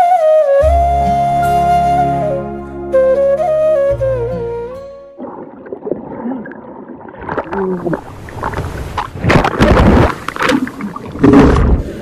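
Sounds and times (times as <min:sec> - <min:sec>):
water churning underwater: 0:05.1 - 0:12.0.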